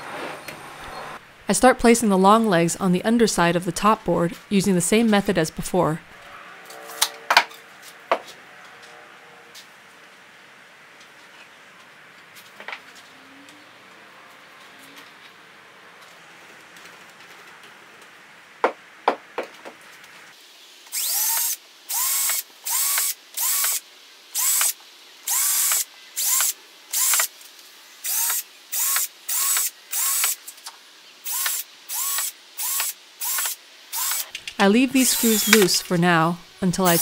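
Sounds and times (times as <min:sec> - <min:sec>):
cordless drill whining: 0:20.9 - 0:23.8, 0:24.4 - 0:27.3, 0:28.0 - 0:30.3, 0:31.3 - 0:34.3, 0:35.0 - 0:35.9.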